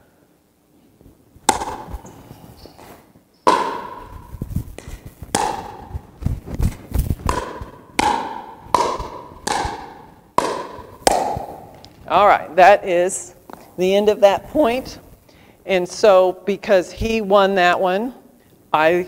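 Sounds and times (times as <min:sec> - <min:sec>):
paddles striking plastic ball: 0:01.5 - 0:02.1, 0:03.5 - 0:12.1
ball bouncing on gym floor: 0:01.5 - 0:02.2, 0:03.5 - 0:12.2.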